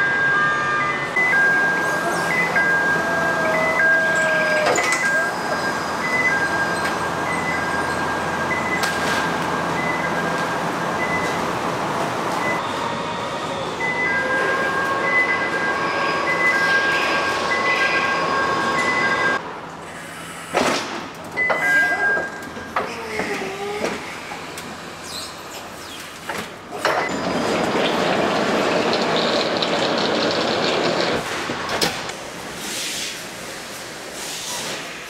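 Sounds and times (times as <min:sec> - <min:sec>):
rushing machinery noise: 0:26.8 - 0:32.5.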